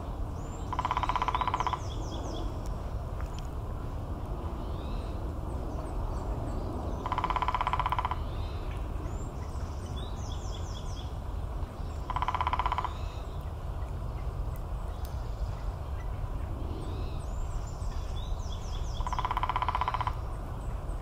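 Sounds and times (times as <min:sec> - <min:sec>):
woodpecker drumming on tree trunk: 0:00.6 - 0:02.2, 0:07.0 - 0:08.3, 0:12.0 - 0:13.2, 0:19.0 - 0:20.4.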